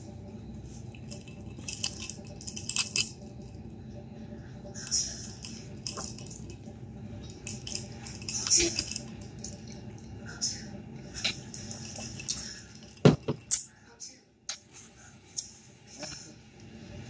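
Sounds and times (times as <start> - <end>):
low room hum: 0.0 - 17.0
glass clicks and knocks: 13.0 - 13.5.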